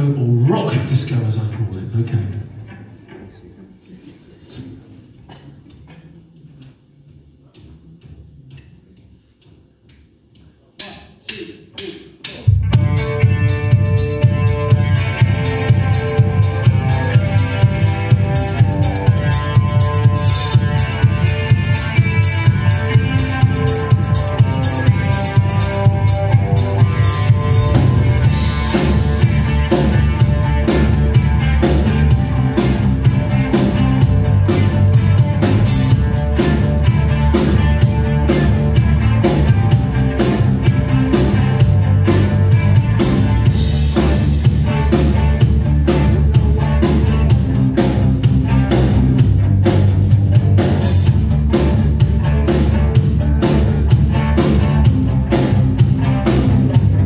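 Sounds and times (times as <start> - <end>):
instrumental rock band playing: 12.5 - 57.0.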